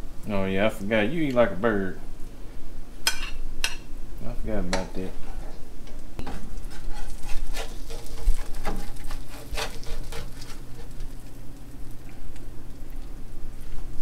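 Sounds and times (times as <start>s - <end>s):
utensil scraping pan: 6.2s - 11.1s
food sizzling in frying pan: 6.2s - 13.0s.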